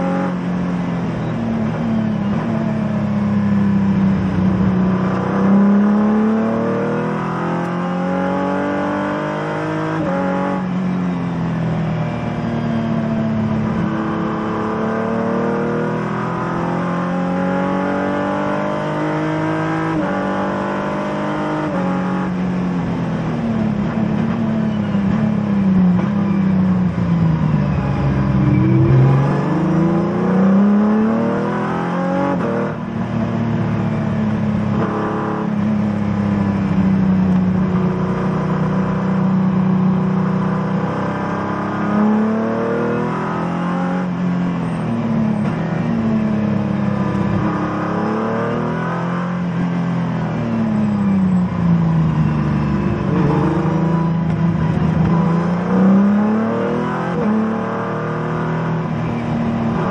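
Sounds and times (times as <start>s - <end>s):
race car engine: 0.0s - 59.9s.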